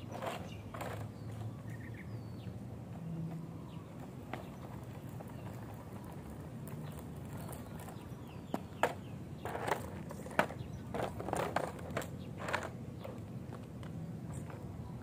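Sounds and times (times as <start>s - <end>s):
small wheels rolling on asphalt: 0.0s - 15.0s
board clattering on pavement: 0.1s - 1.5s, 3.0s - 14.7s.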